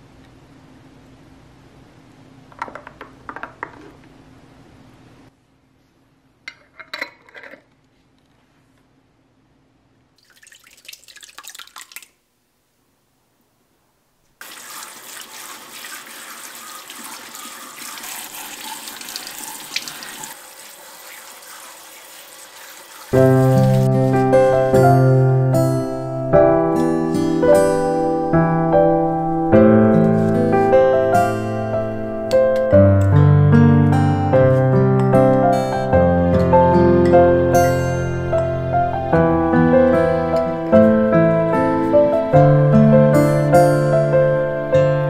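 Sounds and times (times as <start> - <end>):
tap water running: 10.2 - 12.2, 14.4 - 25.1
piano music: 23.1 - 45.0.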